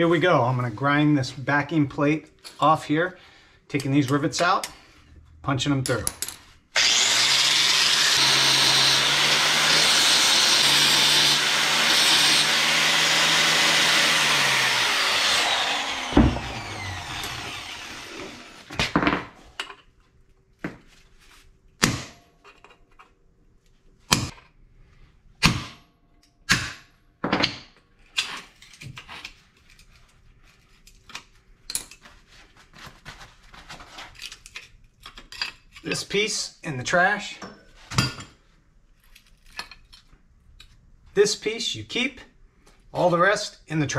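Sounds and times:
angle grinder cutting metal: 0:06.8 - 0:18.7.

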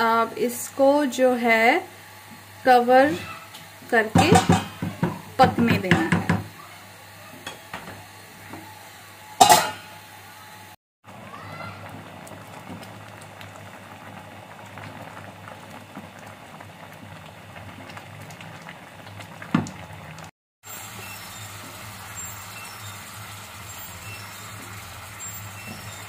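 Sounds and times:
milk bubbling and simmering: 0:11.1 - 0:26.0.

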